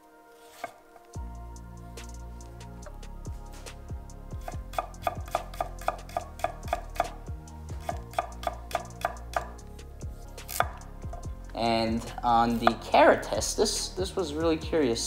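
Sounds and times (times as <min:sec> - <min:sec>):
background music with a beat: 0:00.0 - 0:15.0
knife chopping on wooden board: 0:00.5 - 0:00.8, 0:04.4 - 0:07.2, 0:07.8 - 0:09.6, 0:10.5 - 0:10.8, 0:12.6 - 0:12.9.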